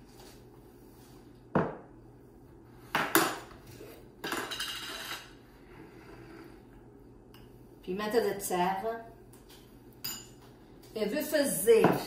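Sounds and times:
spoon and glass jars clinking: 4.2s - 5.3s, 10.0s - 10.4s.

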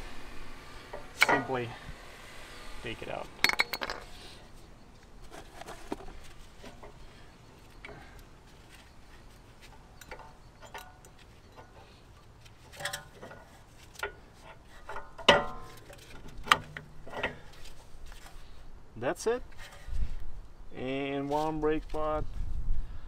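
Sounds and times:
ringing metal clink: 3.4s - 4.1s, 9.9s - 11.8s.

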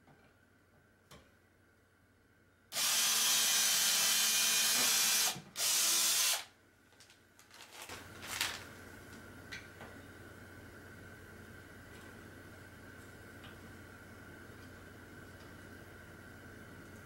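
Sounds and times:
cordless drill boring into wood: 2.8s - 6.5s.

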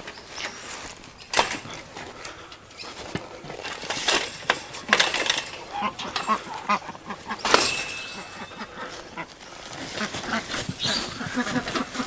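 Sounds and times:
trolley and mesh clanking: 0.0s - 12.0s
ducks quacking: 5.6s - 12.0s.

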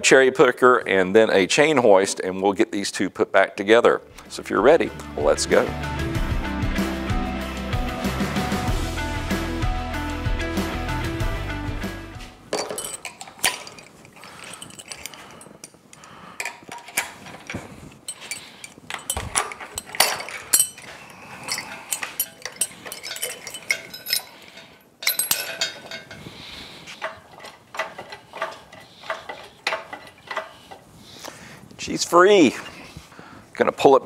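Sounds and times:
steel chains clinking and rattling: 12.5s - 30.9s
loud metal clanks: 16.4s - 26.3s.

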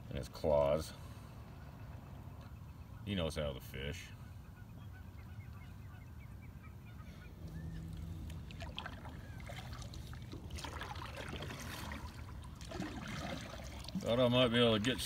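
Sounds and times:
faint goose honk: 4.1s - 7.8s
water splashing around kayak hull: 7.7s - 15.0s.

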